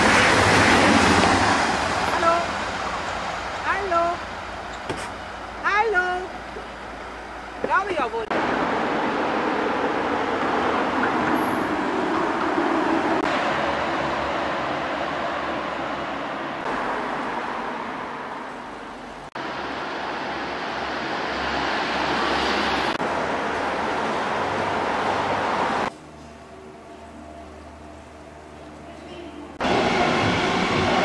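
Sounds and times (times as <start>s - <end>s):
road traffic rushing: 0.0s - 31.0s.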